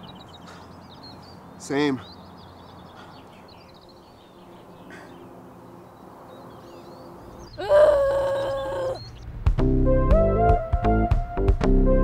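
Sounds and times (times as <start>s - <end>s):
faint bird chirps: 6.4s - 9.2s.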